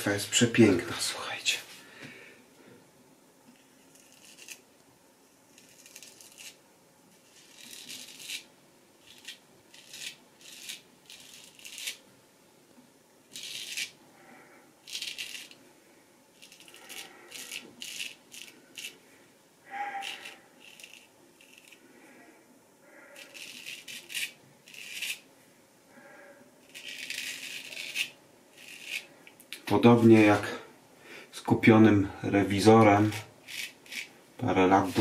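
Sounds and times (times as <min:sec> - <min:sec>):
razor scraping stubble: 0:03.5 - 0:04.6, 0:05.5 - 0:06.6, 0:07.2 - 0:12.0, 0:13.3 - 0:14.0, 0:14.8 - 0:15.6, 0:16.4 - 0:19.0, 0:19.7 - 0:21.8, 0:22.9 - 0:25.2, 0:26.6 - 0:29.2, 0:32.7 - 0:35.0.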